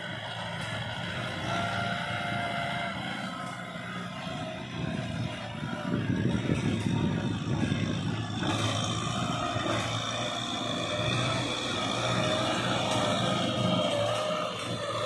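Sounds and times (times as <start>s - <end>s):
plough rumbling through soil: 0.0s - 15.0s
tractor diesel engine running: 0.0s - 15.0s.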